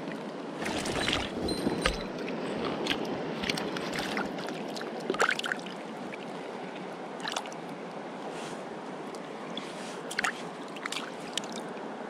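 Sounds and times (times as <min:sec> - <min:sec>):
water splashing: 0:00.6 - 0:05.8, 0:09.6 - 0:11.7.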